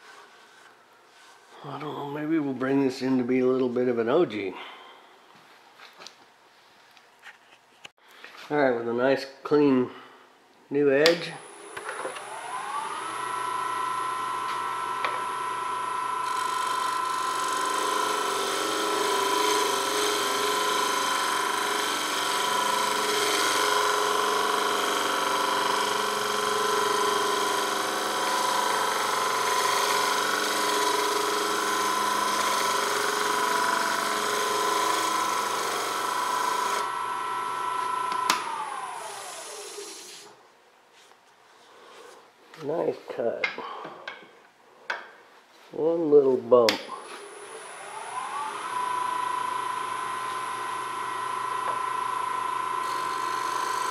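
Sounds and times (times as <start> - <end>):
lathe motor whine: 11.4 - 40.3, 47.0 - 53.9.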